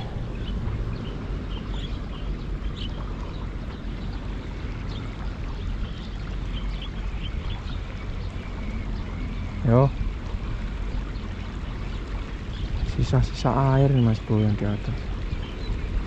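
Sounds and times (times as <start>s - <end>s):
low rumble: 0.0s - 4.4s.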